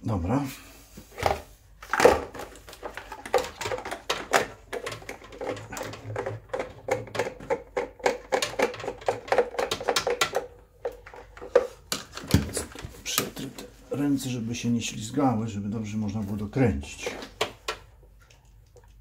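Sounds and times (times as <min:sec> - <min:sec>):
plastic parts clicking: 0:01.8 - 0:13.7.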